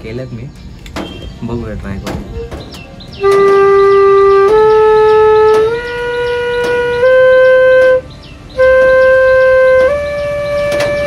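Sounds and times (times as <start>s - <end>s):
bamboo flute long notes: 3.2s - 8.0s, 8.6s - 11.0s.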